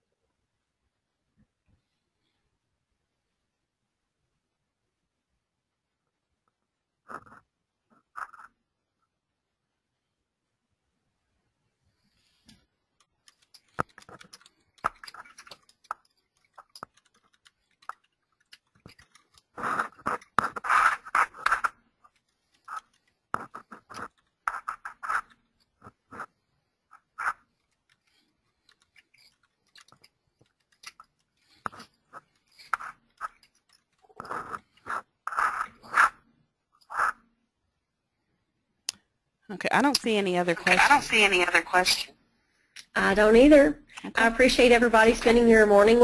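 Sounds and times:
scratching and crackling noises: 7.0 - 8.7, 11.9 - 37.3, 39.7 - 42.2.

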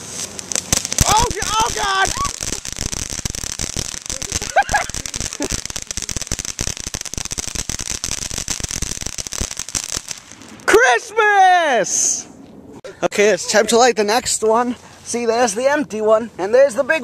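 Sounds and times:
firework crackling with pops: 0.0 - 11.0.

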